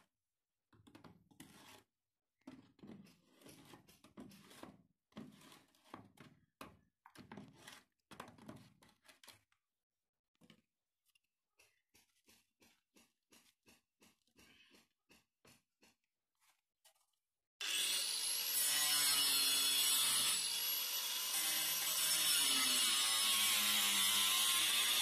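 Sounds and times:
hammer scraping plastic pipe: 0.8s - 9.5s, 11.5s - 17.1s.

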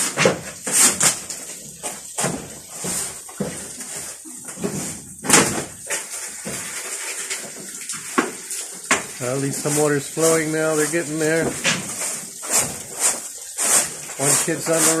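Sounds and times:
background hiss: 0.0s - 15.0s
hard objects knocking and banging: 11.3s - 14.8s.

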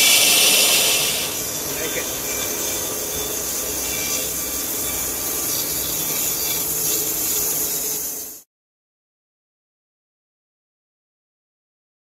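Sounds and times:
band saw blade cutting log: 0.0s - 8.1s.

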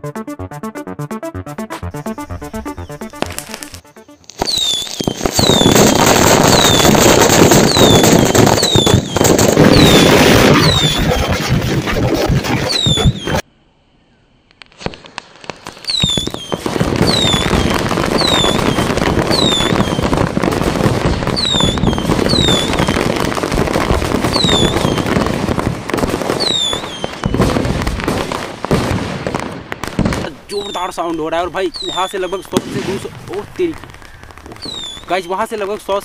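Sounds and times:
firecrackers crackling: 1.8s - 13.4s, 14.5s - 36.0s
high falling whistles: 1.9s - 7.0s, 7.6s - 14.3s, 15.7s - 20.1s, 21.4s - 23.0s, 24.3s - 25.0s, 26.4s - 27.4s, 30.5s - 33.6s, 34.5s - 35.5s.

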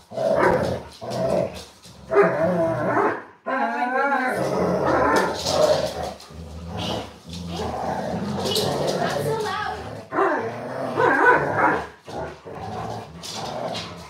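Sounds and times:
dogs growling: 0.0s - 14.0s
dogs barking: 0.4s - 0.7s, 2.1s - 3.3s, 8.4s - 12.0s.

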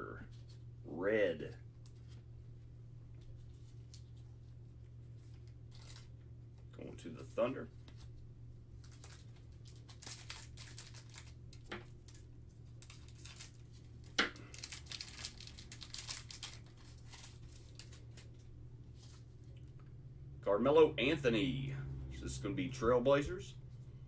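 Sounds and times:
plastic crinkling and rustling: 5.1s - 6.2s, 8.8s - 19.8s.

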